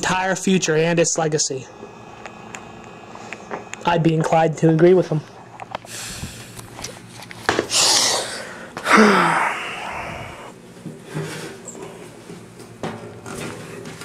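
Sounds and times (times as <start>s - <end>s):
person's breathy cry: 7.8s - 10.5s.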